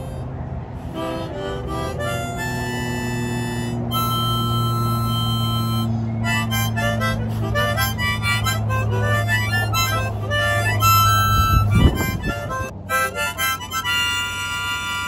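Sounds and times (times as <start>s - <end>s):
harmonica playing: 0.0s - 15.0s
steady low drone: 0.0s - 15.0s.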